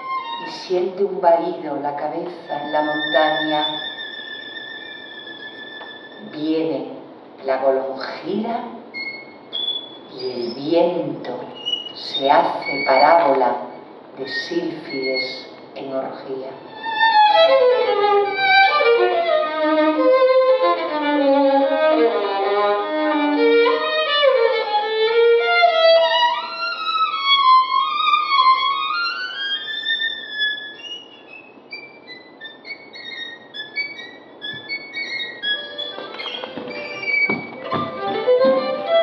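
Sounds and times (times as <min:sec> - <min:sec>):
solo violin playing: 0:00.0 - 0:00.7, 0:02.4 - 0:06.4, 0:16.6 - 0:39.0.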